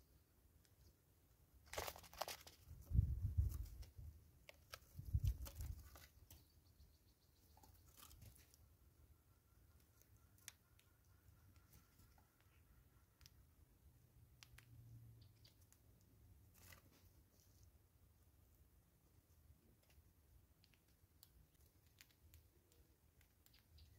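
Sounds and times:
squirrels crunching seeds: 1.6 - 2.8, 3.4 - 6.6, 7.5 - 17.0, 19.2 - 23.9
squirrels scrabbling at plastic bottle: 1.6 - 6.5, 7.5 - 8.7.

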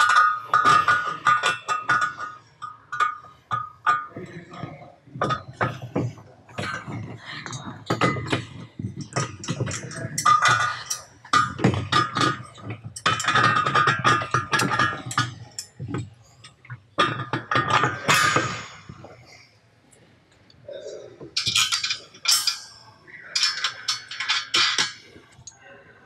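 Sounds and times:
bolts clinking against steel: 0.0 - 4.5, 7.9 - 19.1, 21.4 - 25.5
metallic ring: 21.4 - 25.0.

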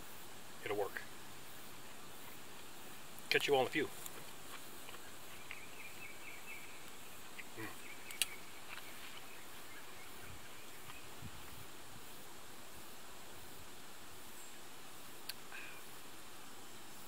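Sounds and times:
steady low hiss: 0.0 - 17.0
faint chirping: 4.6 - 12.4.

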